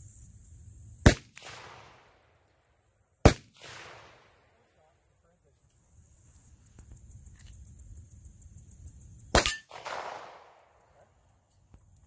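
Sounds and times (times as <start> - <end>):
gunshots with echo: 9.4 - 10.7.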